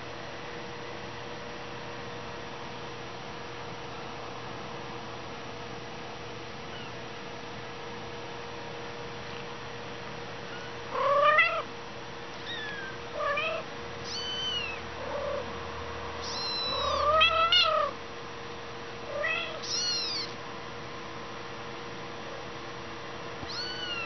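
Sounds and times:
kittens mewing: 0:10.4 - 0:11.7, 0:12.4 - 0:15.5, 0:16.2 - 0:18.0, 0:19.1 - 0:20.4, 0:23.4 - 0:24.0.

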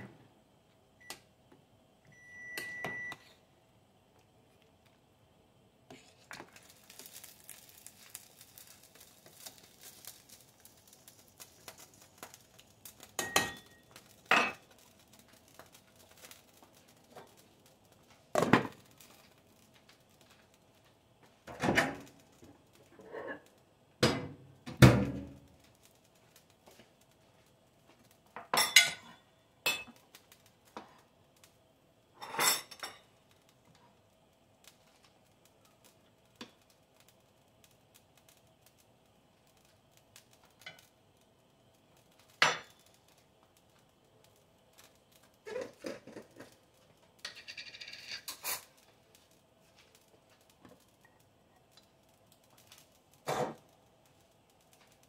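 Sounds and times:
pots and utensils clanking: 0:13.0 - 0:14.8, 0:28.4 - 0:30.0, 0:32.2 - 0:33.1, 0:42.4 - 0:42.8, 0:45.4 - 0:46.6, 0:47.2 - 0:48.8, 0:53.2 - 0:53.6.

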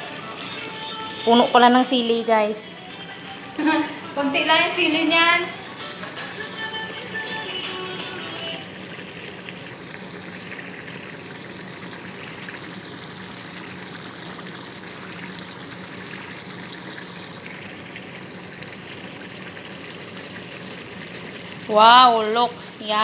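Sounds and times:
background music: 0:00.0 - 0:08.7
stew bubbling and popping: 0:08.6 - 0:22.8.

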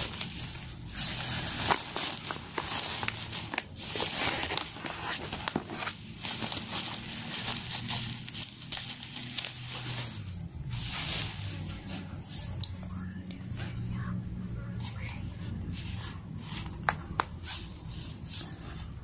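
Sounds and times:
plastic packaging crinkling: 0:00.0 - 0:12.5.

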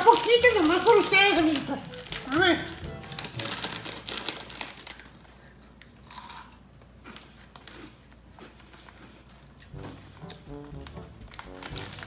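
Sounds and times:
crunchy snacks being chewed: 0:00.0 - 0:05.2, 0:06.0 - 0:12.0
chip bag crackling: 0:00.0 - 0:05.3, 0:10.2 - 0:12.0.

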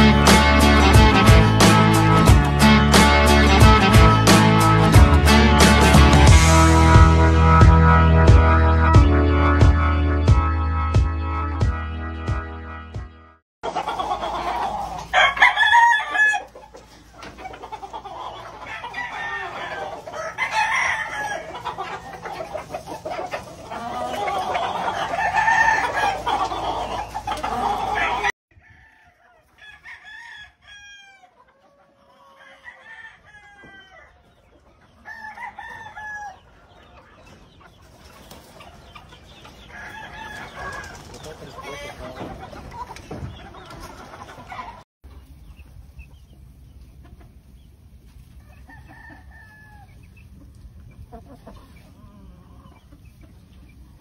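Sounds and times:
roosters crowing: 0:13.6 - 0:44.8, 0:48.3 - 0:50.2, 0:51.1 - 0:53.0
hens clucking: 0:13.6 - 0:54.0.

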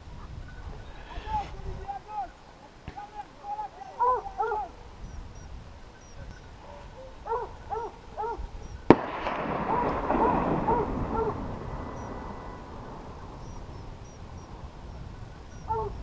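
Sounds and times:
hounds baying: 0:03.6 - 0:04.8, 0:06.0 - 0:08.8, 0:09.5 - 0:13.6, 0:15.5 - 0:16.0
echoing gunshot: 0:08.9 - 0:13.7.

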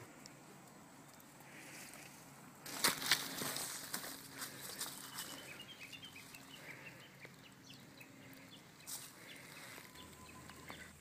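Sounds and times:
small birds chirping: 0:02.9 - 0:11.0.

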